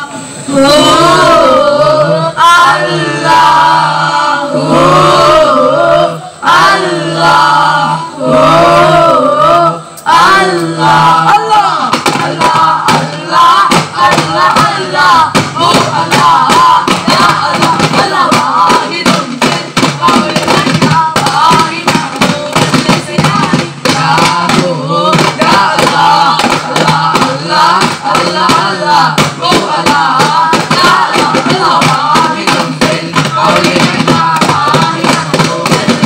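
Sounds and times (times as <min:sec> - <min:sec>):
men singing in chorus: 0:00.0 - 0:36.0
frame drums beating: 0:10.1 - 0:36.0.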